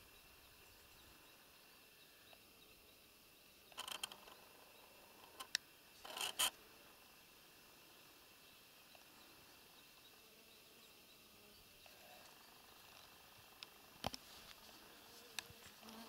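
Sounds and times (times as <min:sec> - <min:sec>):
faint outdoor background: 0:00.0 - 0:16.0
rustling and scraping: 0:05.2 - 0:06.5, 0:14.0 - 0:16.0.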